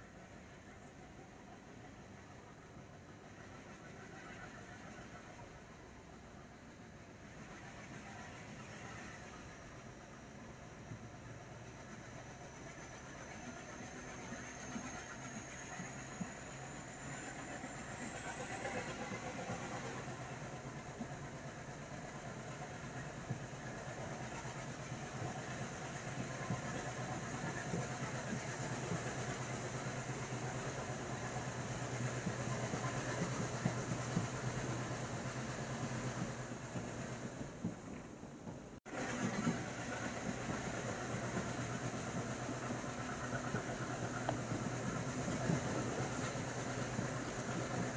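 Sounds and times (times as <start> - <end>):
train wheels rumbling: 6.6 - 47.9.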